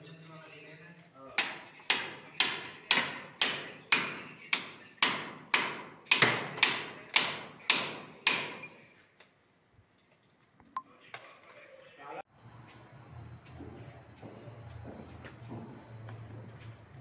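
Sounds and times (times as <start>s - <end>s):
hammer striking chisel: 1.4s - 8.8s.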